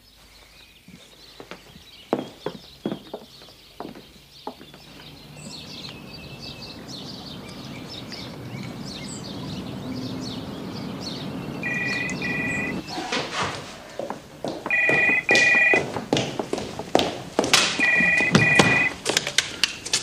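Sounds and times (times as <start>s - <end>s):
birds chirping: 0.0s - 15.8s, 17.7s - 19.0s
low background hum: 4.8s - 15.8s
telephone ringing: 11.6s - 12.9s, 14.7s - 15.9s, 17.8s - 19.0s.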